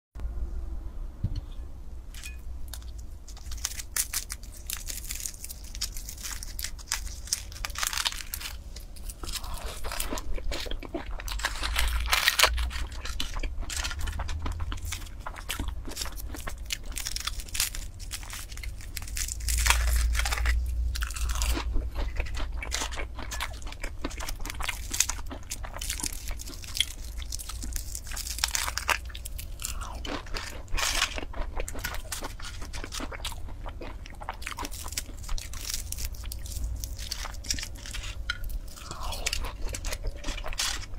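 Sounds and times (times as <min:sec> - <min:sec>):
pastry crust crunching: 0:02.2 - 0:40.9.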